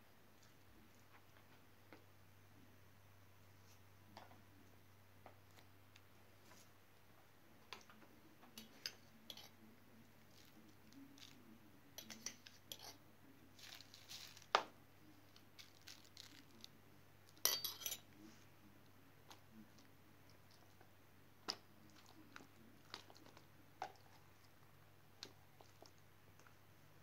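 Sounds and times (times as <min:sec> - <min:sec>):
knife and spoon clinking on glass: 0:17.4 - 0:18.1.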